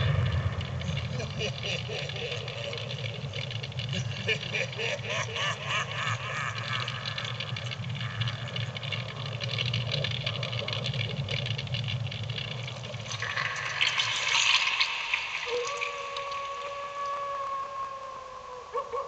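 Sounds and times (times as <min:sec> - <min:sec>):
low rumble: 0:00.0 - 0:16.7
eerie tones: 0:00.0 - 0:18.8
howl: 0:15.4 - 0:19.0.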